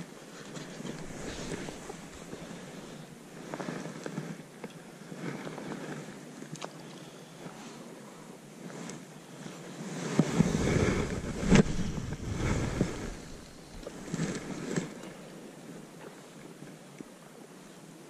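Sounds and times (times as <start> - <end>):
hand and clothing rubbing camera: 0.3 - 4.4, 9.9 - 15.0.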